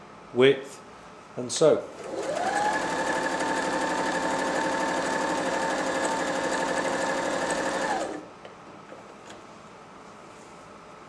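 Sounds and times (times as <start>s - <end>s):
sewing machine running: 2.0s - 8.2s.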